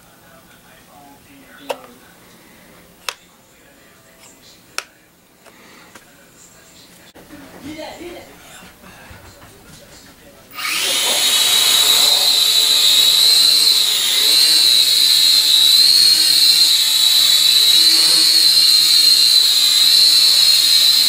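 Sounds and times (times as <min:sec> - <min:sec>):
quadcopter motors whining: 0:10.5 - 0:21.0.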